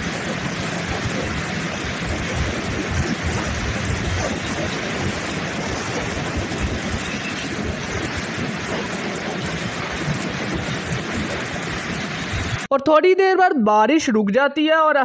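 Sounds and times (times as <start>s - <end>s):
low road rumble: 0.0s - 12.7s
tyres hissing on wet road: 0.0s - 12.7s.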